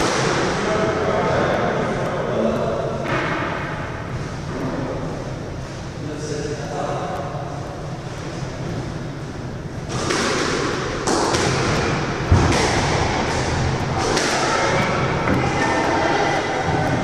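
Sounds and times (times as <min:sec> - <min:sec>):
squash ball thudding off walls: 0:09.9 - 0:15.5
loud thump: 0:12.3 - 0:13.2.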